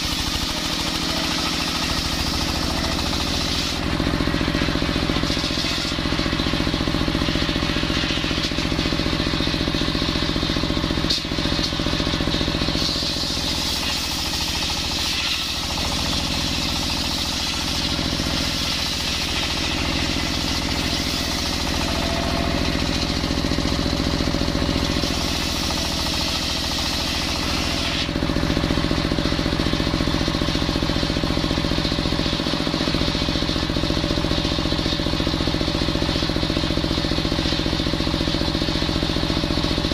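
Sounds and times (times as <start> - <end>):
circular saw blade ripping log: 0.0 - 10.1, 10.8 - 28.4
engine running: 0.0 - 39.9.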